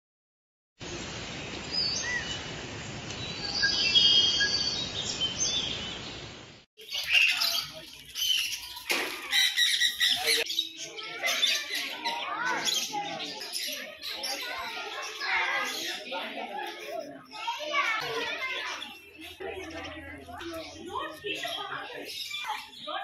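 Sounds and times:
bird whistles and chirps: 0:03.2 - 0:06.0
aviary birds chirping: 0:03.2 - 0:23.0.

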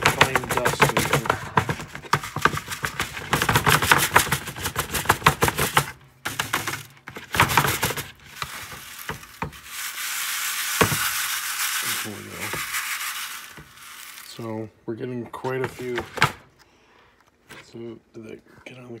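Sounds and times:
pins rattling in plastic sieve: 0:00.0 - 0:14.6
dust hissing in mesh: 0:08.3 - 0:14.6.

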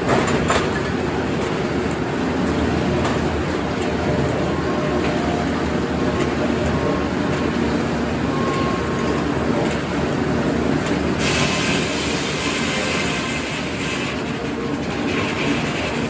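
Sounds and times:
circular saw running: 0:10.9 - 0:16.0.

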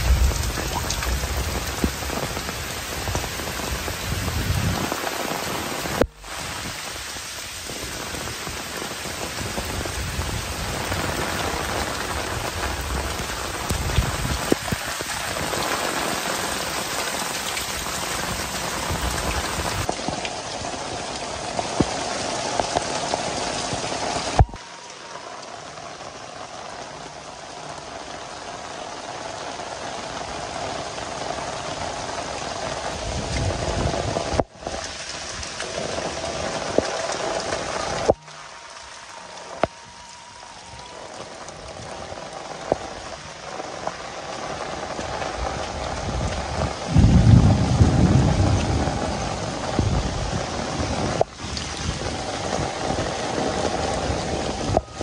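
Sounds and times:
low rumble: 0:00.0 - 0:04.8, 0:45.9 - 0:51.2
heavy rain: 0:00.0 - 0:55.0.

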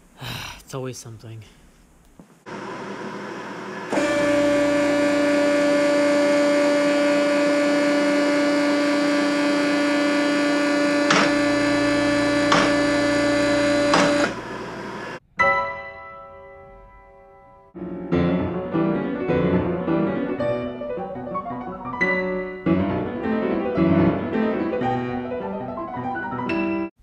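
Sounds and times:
hydraulic pump motor humming: 0:02.5 - 0:15.2.

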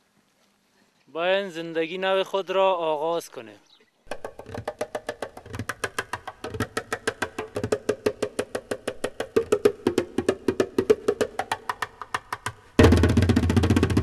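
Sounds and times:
rapid percussion strokes: 0:04.1 - 0:14.0.

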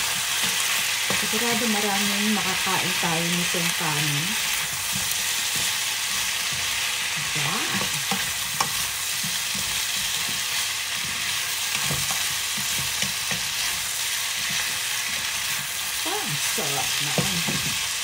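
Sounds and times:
food sizzling in a frying pan: 0:00.0 - 0:18.0
spatula scraping and tapping pan: 0:04.6 - 0:06.9, 0:07.7 - 0:15.8.

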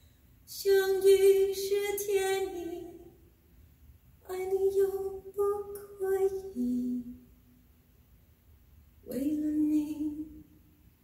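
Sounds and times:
woman singing through speakers: 0:00.5 - 0:03.0, 0:04.3 - 0:07.1, 0:09.1 - 0:10.4.

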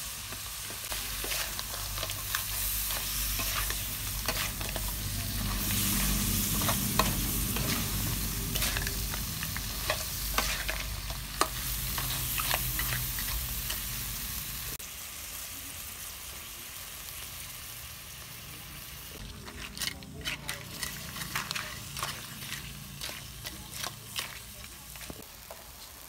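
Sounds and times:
food sizzling: 0:00.0 - 0:26.0
metal spatula scraping wok: 0:00.5 - 0:14.7, 0:19.2 - 0:25.6.

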